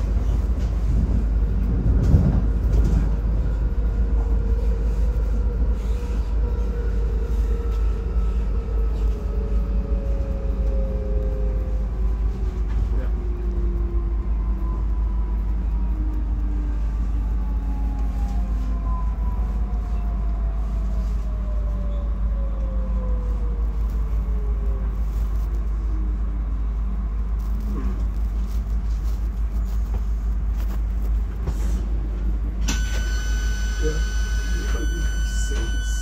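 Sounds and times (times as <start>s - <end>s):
train running gear rumble: 0.0s - 36.0s.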